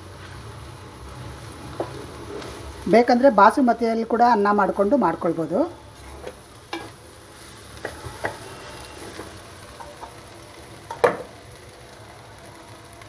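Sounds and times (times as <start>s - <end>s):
spatula scraping a pot: 6.0s - 9.4s.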